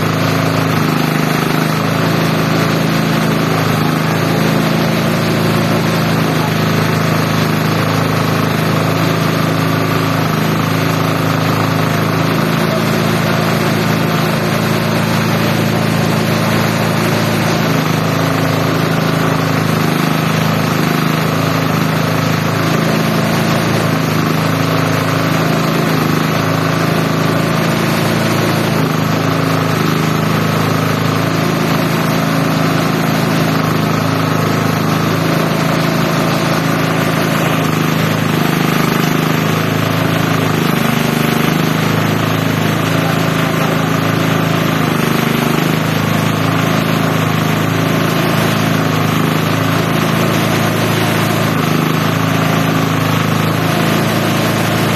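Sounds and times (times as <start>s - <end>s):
shredder machine running: 0.0s - 54.9s.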